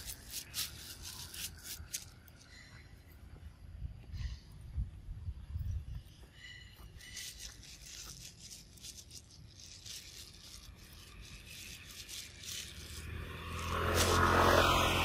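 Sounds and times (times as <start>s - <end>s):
faint scratchy rustling: 6.8s - 14.4s.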